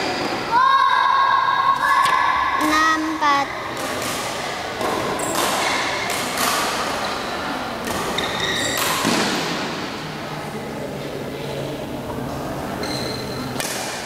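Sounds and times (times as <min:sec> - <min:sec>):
rackets hitting shuttlecock: 0:03.6 - 0:07.2, 0:07.8 - 0:10.0, 0:13.5 - 0:14.0
shoes squeaking on court: 0:05.2 - 0:06.0, 0:07.9 - 0:09.1, 0:12.8 - 0:13.6.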